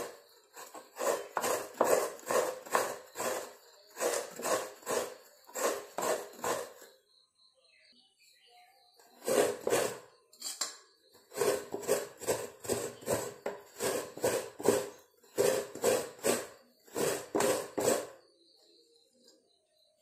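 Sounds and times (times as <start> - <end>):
coconut scraping on grater: 0.0 - 6.8, 9.2 - 10.1, 11.2 - 18.2.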